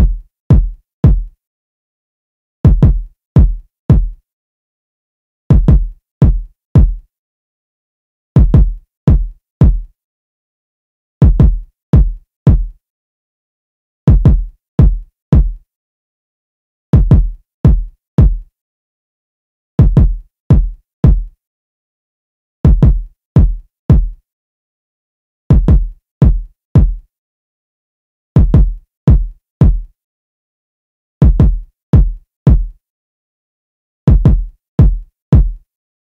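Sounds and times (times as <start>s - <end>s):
electronic kick drum loop: 0.0s - 1.3s, 2.7s - 4.2s, 5.5s - 7.0s, 8.4s - 9.9s, 11.2s - 12.7s, 14.1s - 15.6s, 17.0s - 18.4s, 19.8s - 21.3s, 22.7s - 24.2s, 25.5s - 27.0s, 28.4s - 29.9s, 31.2s - 32.7s, 34.1s - 35.6s.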